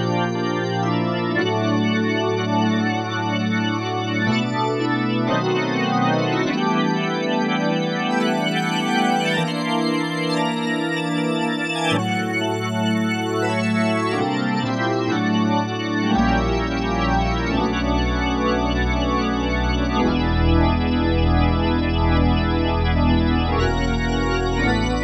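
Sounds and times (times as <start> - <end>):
synthesizer chords: 8.0 - 25.0.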